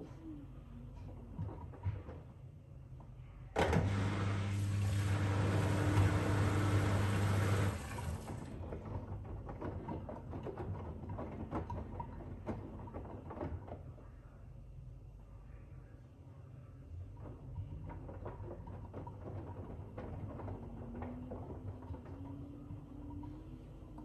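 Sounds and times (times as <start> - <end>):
drain pump humming: 3.6 - 8.6
wet laundry sloshing in drum: 4.5 - 8.6.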